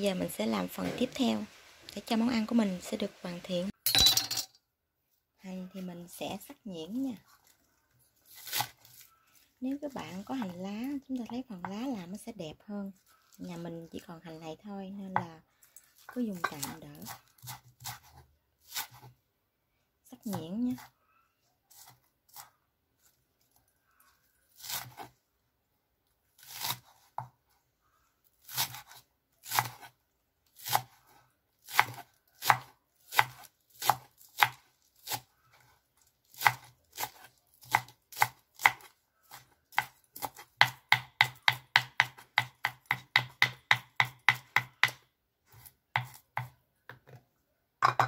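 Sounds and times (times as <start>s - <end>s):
knife chopping on wooden board: 31.7s - 35.2s, 36.4s - 47.2s.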